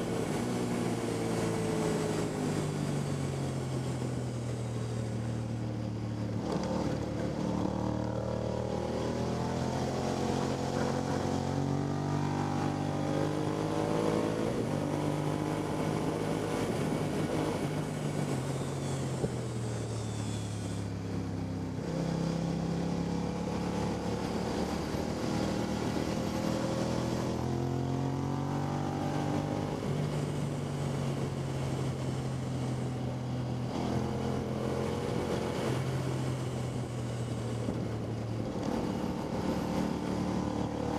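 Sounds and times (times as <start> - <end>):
wind noise on microphone: 15.6 - 21.1.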